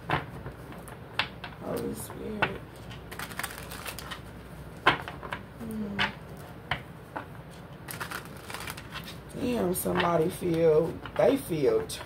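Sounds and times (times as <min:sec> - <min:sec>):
cards clicking and snapping: 0:03.0 - 0:04.2, 0:07.9 - 0:09.2
person humming: 0:05.6 - 0:06.1.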